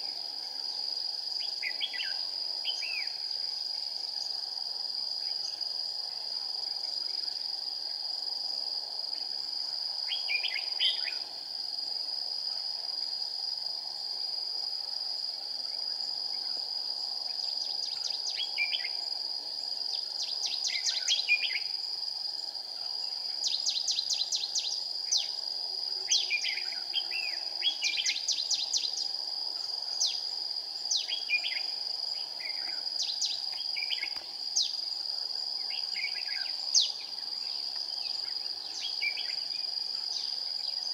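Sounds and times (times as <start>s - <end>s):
high-pitched insect drone: 17.2s - 40.9s.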